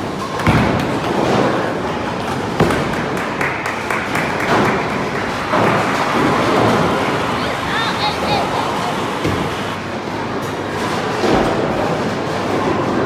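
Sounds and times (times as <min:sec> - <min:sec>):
bowling ball thudding and rolling: 0:00.1 - 0:07.3.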